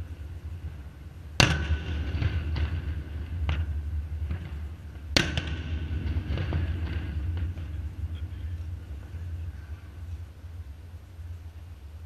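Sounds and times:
fireworks bangs: 0.0 - 10.7
fireworks crackle: 0.0 - 12.0
steady low rumble: 0.0 - 12.0
fireworks pops: 1.4 - 9.2.

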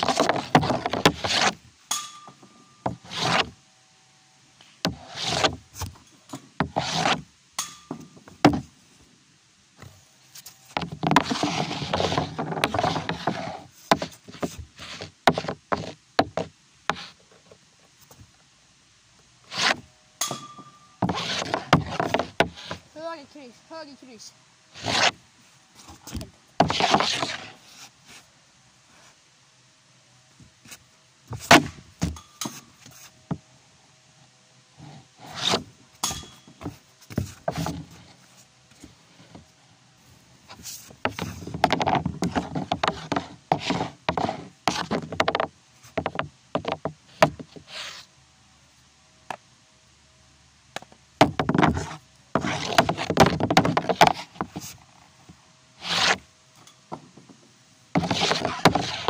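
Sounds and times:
stick dragging puck across pad: 0.0 - 3.6, 4.6 - 7.3, 9.8 - 18.2, 19.4 - 22.9, 24.7 - 28.3, 30.6 - 33.4, 34.7 - 39.4, 40.0 - 48.1, 51.2 - 54.9, 55.8 - 56.3, 58.0 - 59.0
hockey stick clacking on puck: 58.0 - 59.0.

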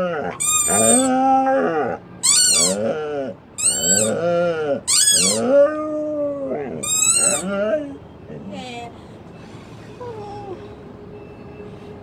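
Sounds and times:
husky howling: 0.0 - 8.0
squeaky dog toy squeaking: 0.4 - 1.1, 2.2 - 3.0, 3.6 - 5.6, 6.8 - 7.7.

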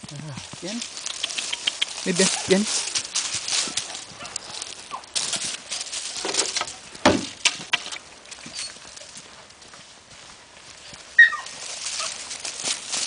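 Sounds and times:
footsteps crunching through dry leaves: 0.0 - 13.0.

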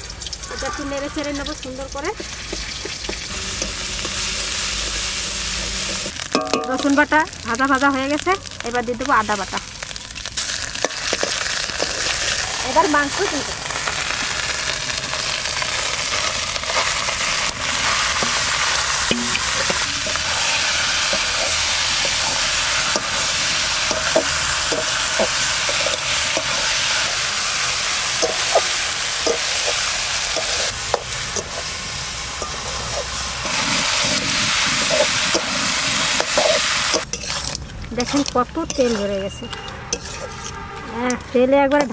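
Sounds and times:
meat sizzling in hot oil: 0.0 - 39.2
metal spatula scraping pan: 17.6 - 41.9.

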